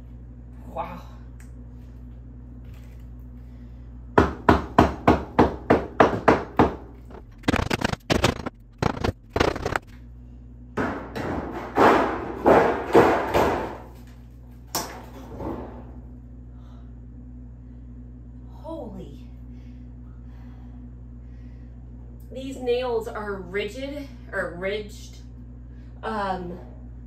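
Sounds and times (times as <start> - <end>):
scraping grinding: 7.0 - 10.0.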